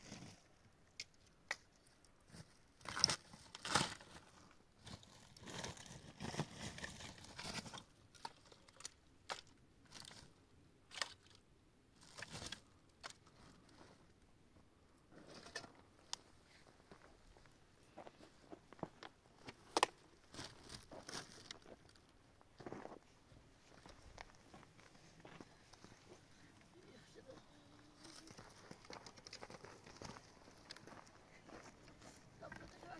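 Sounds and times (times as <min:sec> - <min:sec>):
crunching and rustling handling: 0:02.3 - 0:10.3, 0:16.0 - 0:32.9.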